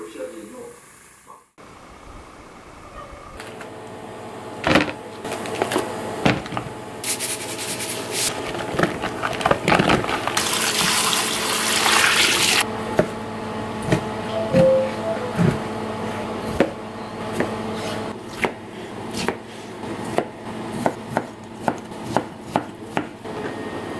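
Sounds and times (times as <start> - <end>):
tap water running into sink: 9.9 - 12.6
steady hum: 12.6 - 19.1.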